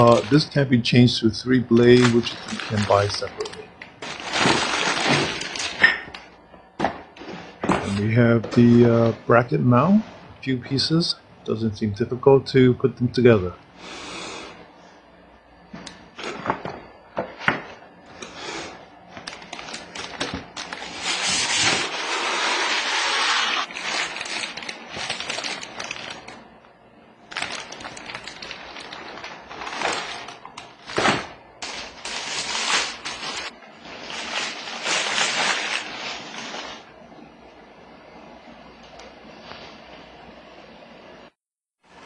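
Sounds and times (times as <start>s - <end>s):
plastic bag rustling: 0.0s - 0.6s, 1.6s - 5.8s, 19.2s - 26.4s, 27.3s - 36.8s.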